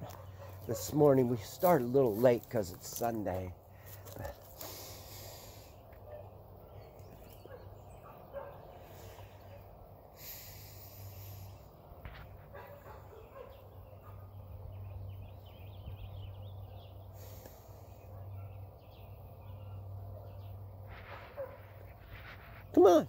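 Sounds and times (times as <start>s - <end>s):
dogs barking faintly: 0.0s - 3.4s, 5.9s - 9.9s, 11.5s - 14.6s, 17.4s - 23.0s.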